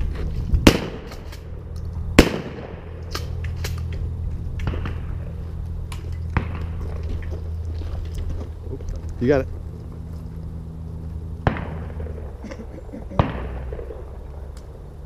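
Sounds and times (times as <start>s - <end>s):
steady low rumble: 0.0s - 15.0s
shotgun shot echoing: 2.2s - 3.2s, 11.4s - 12.3s, 13.2s - 14.0s.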